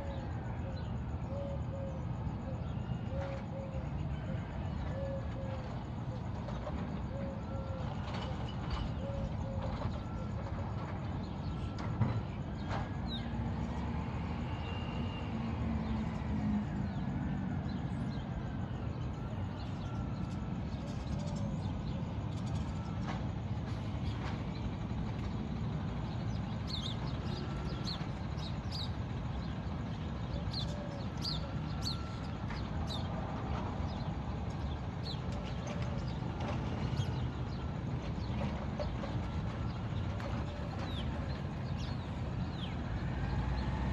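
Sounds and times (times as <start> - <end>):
distant garbage truck rumble: 0.0 - 43.9
birds chirping: 14.6 - 43.9.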